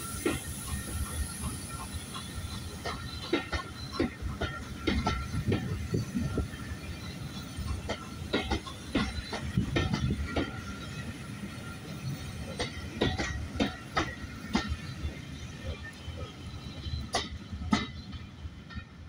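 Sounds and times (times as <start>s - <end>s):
train wheels clattering over rail joints: 0.0s - 19.0s
wind rumbling on microphone: 4.8s - 6.8s.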